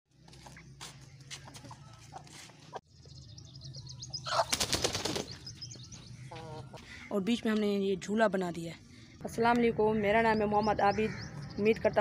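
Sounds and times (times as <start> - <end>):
hen flapping wings: 4.3 - 5.4.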